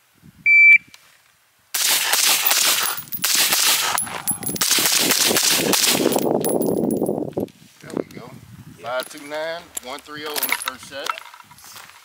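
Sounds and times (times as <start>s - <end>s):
rapid gunshots: 1.8s - 4.0s, 4.6s - 6.1s.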